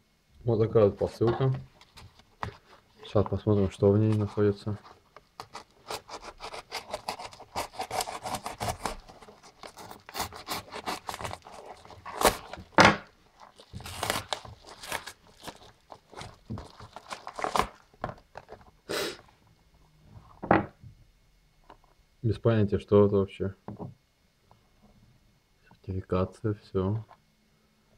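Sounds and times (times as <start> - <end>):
packaging rustling: 1.6 - 18.8
paper mailer tearing: 5.4 - 17.9.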